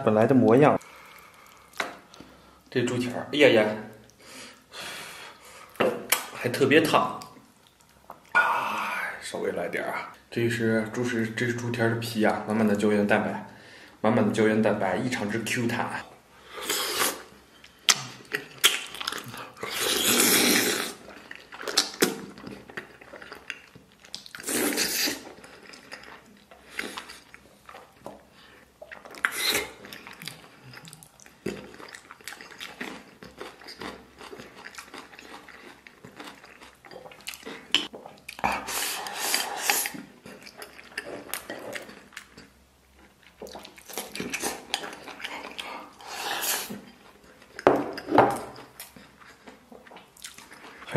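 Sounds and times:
chewing with wet mouth noises: 17.1 - 50.9.

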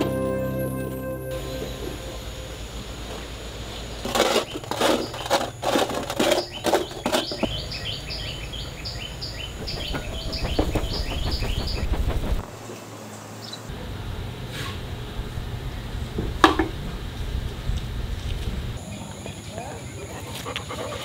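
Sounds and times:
sharp knocks and scrapes: 4.0 - 7.6, 9.5 - 12.5
bird chirping: 6.2 - 13.7.

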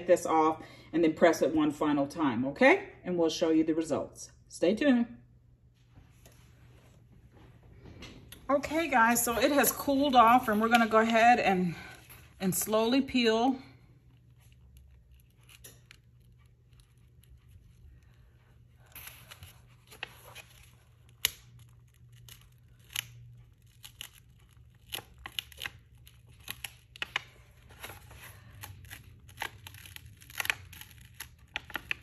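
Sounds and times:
film peeling off fabric: 14.0 - 32.0.

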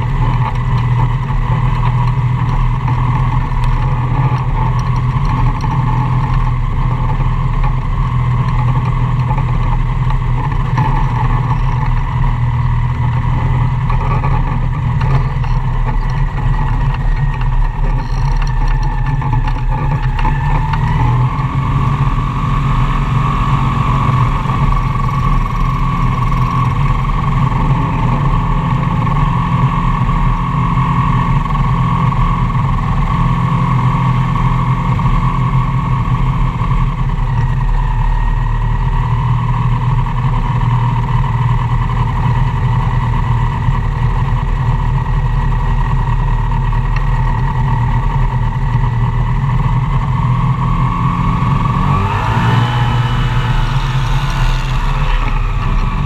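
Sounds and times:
aircraft engine and propeller drone: 0.0 - 56.0
high whining tone: 17.0 - 28.4, 52.0 - 56.0.

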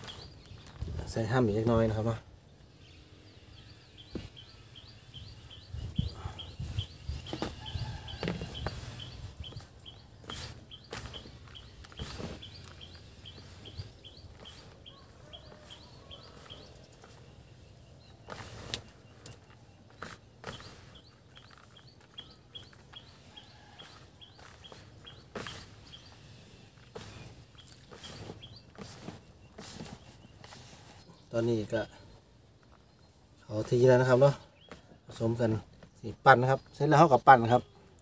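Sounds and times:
bird chirping: 0.0 - 38.0
hands squeezing wet mash: 18.2 - 31.0.

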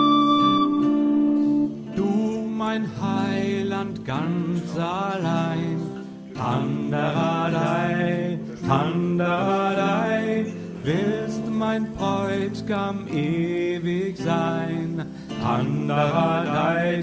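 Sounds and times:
sustained instrumental accompaniment: 0.0 - 1.9
person singing medieval-style song: 1.7 - 17.0.

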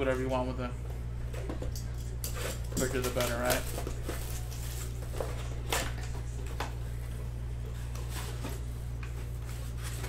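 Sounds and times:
steady low hum: 0.0 - 10.0
cardboard and plastic rustling: 2.8 - 10.0.

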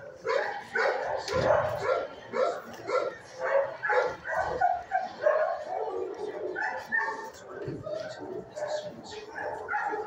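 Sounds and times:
dog barking: 0.2 - 5.9, 8.6 - 10.0.

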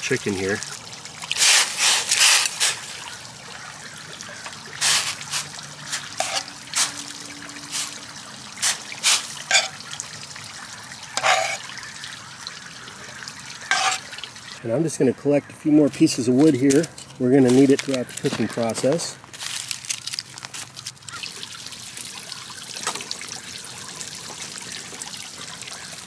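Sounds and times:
water sloshing: 0.0 - 14.6
heating water hiss: 1.3 - 3.2, 4.6 - 9.8.

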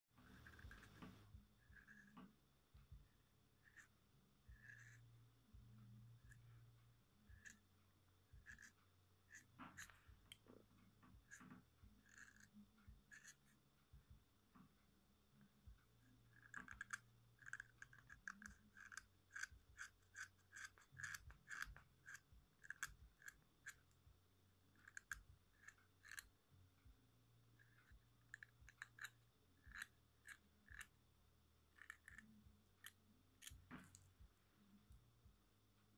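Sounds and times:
blade shaving pencil wood: 0.2 - 2.3, 3.6 - 5.2, 7.3 - 7.6, 8.3 - 10.5, 11.2 - 13.6, 16.0 - 24.1, 24.7 - 26.4, 27.5 - 31.0, 31.7 - 34.0.

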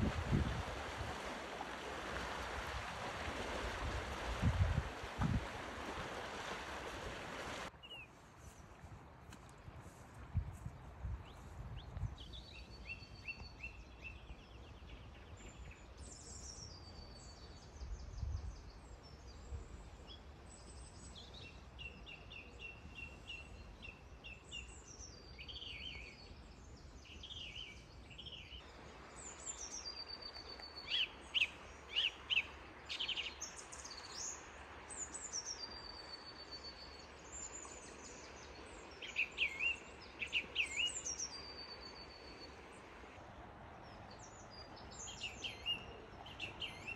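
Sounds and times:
songbirds singing: 7.8 - 8.6, 11.2 - 43.0, 43.7 - 46.9.

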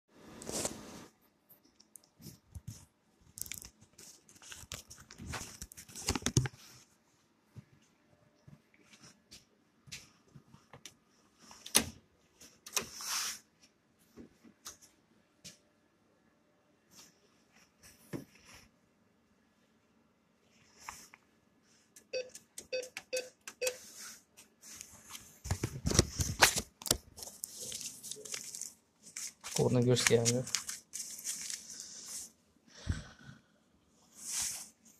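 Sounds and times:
clothing and phone handling noise: 0.4 - 1.2, 2.1 - 15.7, 23.6 - 32.4
keypad clicks with faint beep: 22.0 - 23.8.

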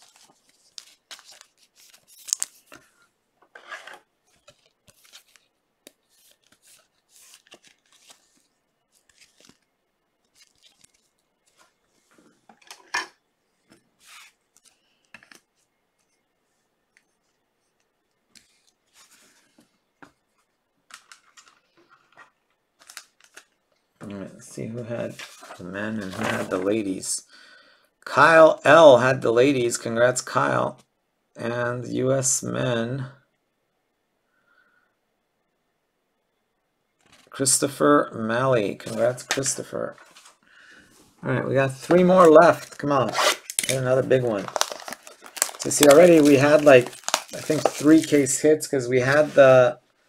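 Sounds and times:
plastic card holder rustling: 41.8 - 48.3.

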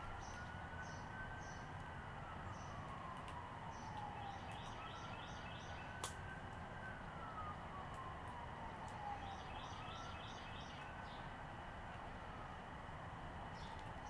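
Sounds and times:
bird chirping: 0.0 - 1.7, 3.7 - 6.0, 9.2 - 11.3, 13.5 - 13.8
faint siren wailing: 0.0 - 14.0.

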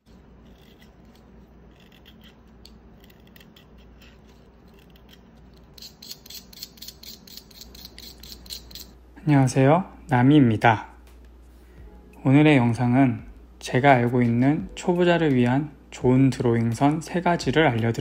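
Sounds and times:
knife scraping pencil: 0.0 - 9.0.

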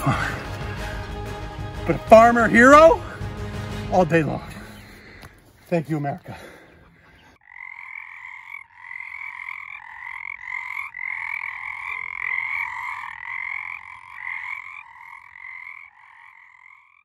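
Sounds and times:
frogs croaking: 4.5 - 17.0.

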